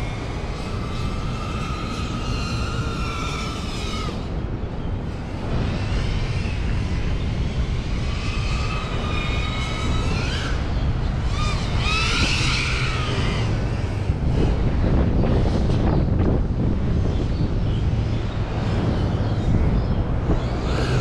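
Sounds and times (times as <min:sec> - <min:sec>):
drone motors whining: 0:00.0 - 0:21.0
wind rumble on microphone: 0:00.0 - 0:21.0.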